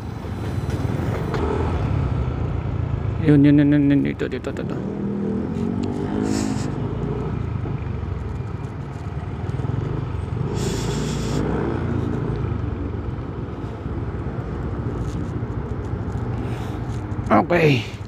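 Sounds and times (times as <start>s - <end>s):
scooter engine and road rumble: 0.0s - 18.0s
short hisses: 10.6s - 11.5s.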